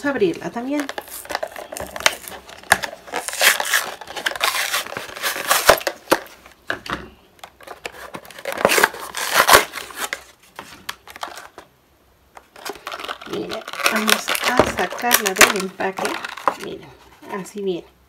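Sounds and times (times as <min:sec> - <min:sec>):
plastic packaging tearing and crinkling: 0:00.7 - 0:06.4, 0:07.5 - 0:11.7, 0:12.4 - 0:16.8.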